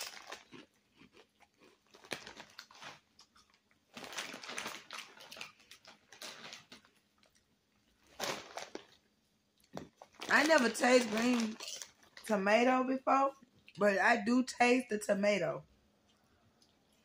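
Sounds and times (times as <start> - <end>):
chips being crunched and chewed: 0.0 - 9.0, 9.6 - 12.3
foil chip bag crinkling: 0.0 - 12.5.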